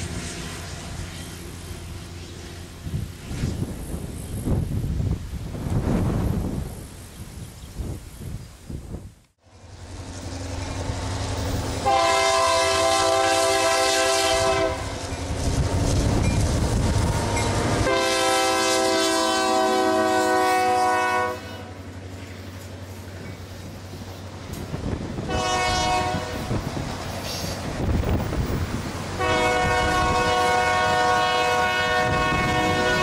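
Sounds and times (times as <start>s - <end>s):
train cars rumbling on rails: 0.0s - 33.0s
locomotive horn blasts: 11.8s - 15.0s, 17.8s - 21.8s, 25.2s - 26.7s, 29.2s - 33.0s.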